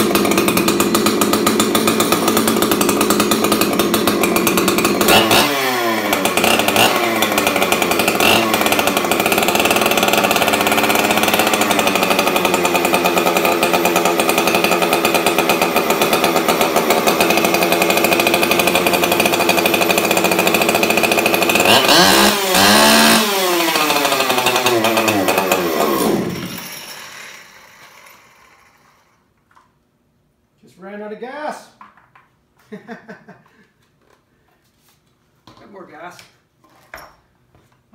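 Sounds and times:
chainsaw running: 0:00.0 - 0:29.3.

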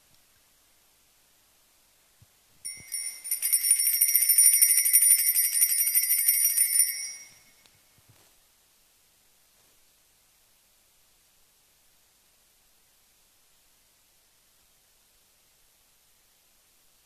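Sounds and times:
altar bells jingling: 0:02.7 - 0:07.6.

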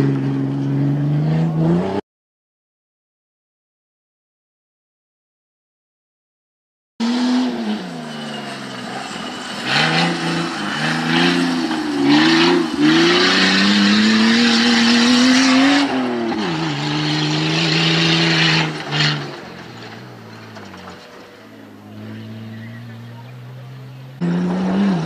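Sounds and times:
truck engine revving hard: 0:00.0 - 0:02.0, 0:07.0 - 0:25.0.

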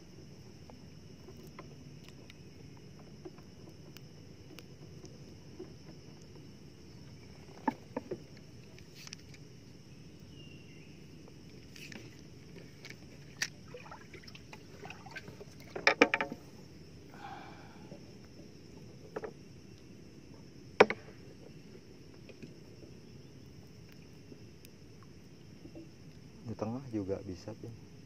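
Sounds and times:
faint steady high hiss: 0:00.0 - 0:28.0
light clicks and knocks: 0:15.5 - 0:16.6.

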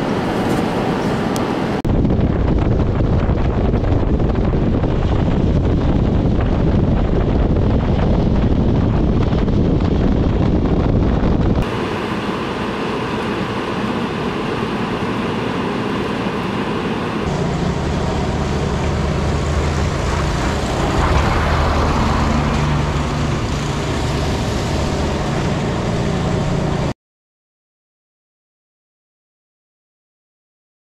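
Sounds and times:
low engine hum: 0:00.0 - 0:27.0
tyres on slushy road: 0:11.7 - 0:26.9
vehicle passing: 0:17.3 - 0:26.9.

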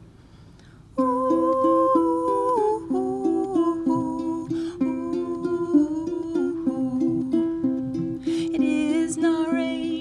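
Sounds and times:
small plucked string instrument: 0:01.0 - 0:10.0
plucked acoustic guitar: 0:03.4 - 0:10.0.

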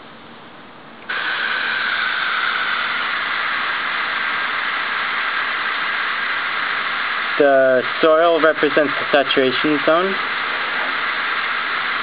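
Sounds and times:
hose nozzle spraying water: 0:01.1 - 0:12.0.

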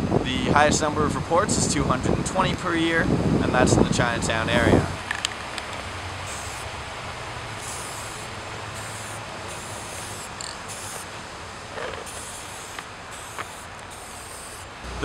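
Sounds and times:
spray paint can hissing: 0:06.3 - 0:06.7, 0:07.6 - 0:11.1, 0:11.7 - 0:14.8.

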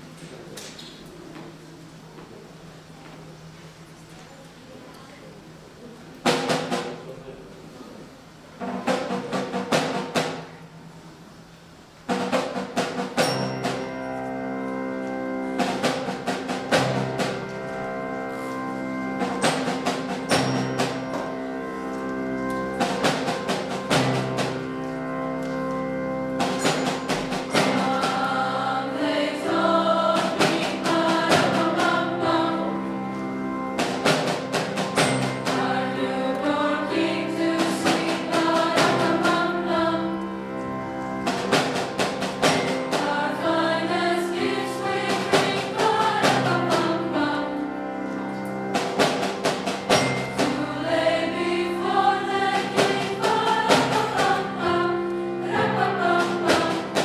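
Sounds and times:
grand piano: 0:00.0 - 0:57.0
drum kit hits: 0:12.1 - 0:14.0, 0:15.6 - 0:17.5, 0:19.2 - 0:21.5, 0:22.8 - 0:24.8, 0:26.4 - 0:32.8, 0:33.8 - 0:36.0, 0:41.2 - 0:43.3, 0:44.4 - 0:47.0, 0:48.7 - 0:54.9, 0:55.5 - 0:57.0
girls' choir singing: 0:26.1 - 0:48.1, 0:48.8 - 0:57.0.

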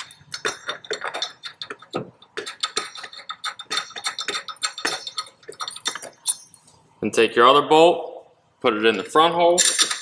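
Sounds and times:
metallic clicking and clinking: 0:00.0 - 0:06.8, 0:09.6 - 0:10.0.

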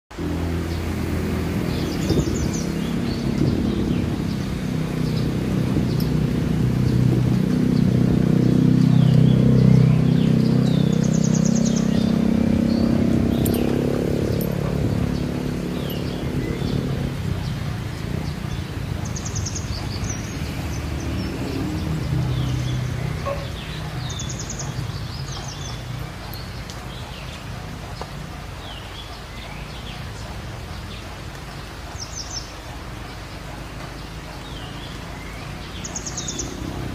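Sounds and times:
low drone: 0:00.1 - 0:25.2
birds chirping and trilling: 0:00.2 - 0:36.9.

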